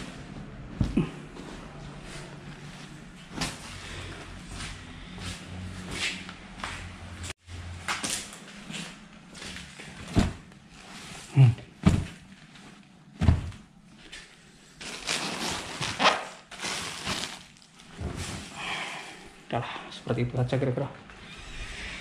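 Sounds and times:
rustling: 8.6s - 18.6s
knocks and thuds of objects: 10.1s - 10.4s, 11.8s - 12.2s, 13.2s - 13.6s.

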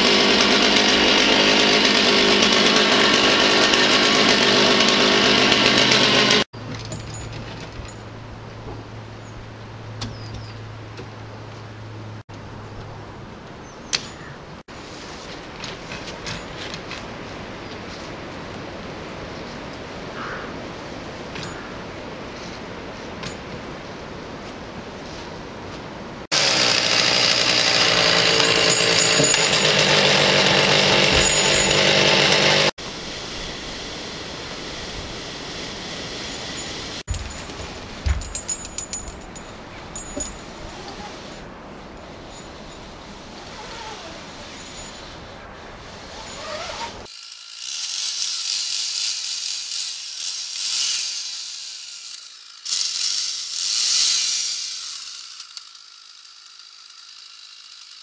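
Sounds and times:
chainsaw running: 0.0s - 6.5s, 26.3s - 37.4s, 46.6s - 58.0s.

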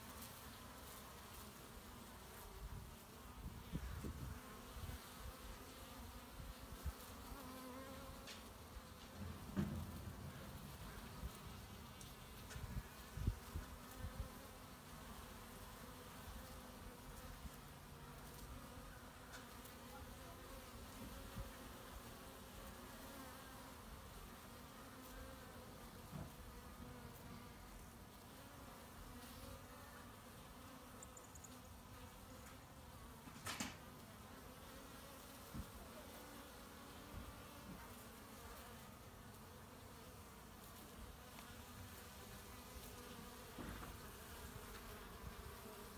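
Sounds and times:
bees buzzing: 0.0s - 33.3s.

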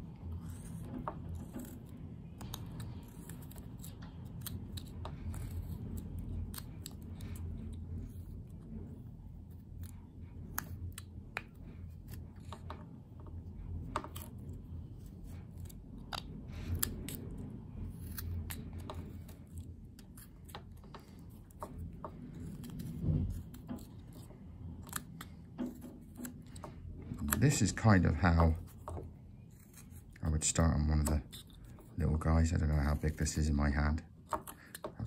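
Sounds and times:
knife cutting wood: 0.4s - 7.4s, 17.9s - 32.1s.

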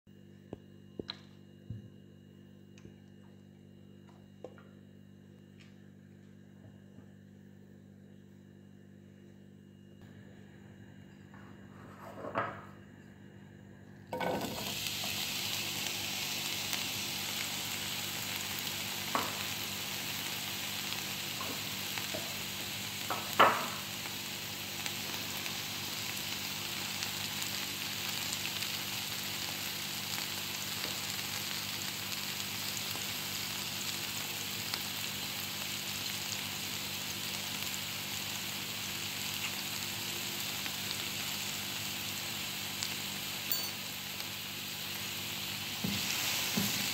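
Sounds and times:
food sizzling in hot oil: 14.1s - 46.9s.

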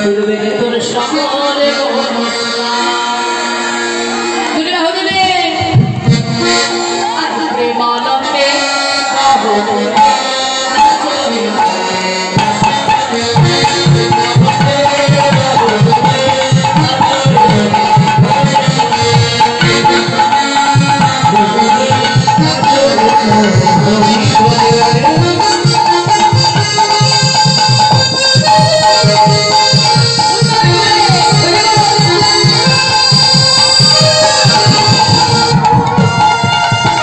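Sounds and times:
person singing: 7.3s - 37.0s
drum played fast: 9.4s - 37.0s.

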